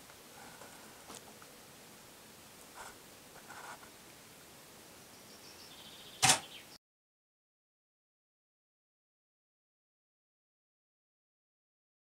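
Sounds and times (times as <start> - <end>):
faint background hiss: 0.0 - 6.8
sharp click: 6.2 - 6.5.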